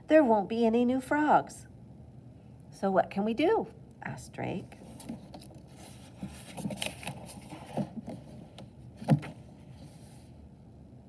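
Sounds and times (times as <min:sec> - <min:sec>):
book pages turning: 0:04.7 - 0:10.3.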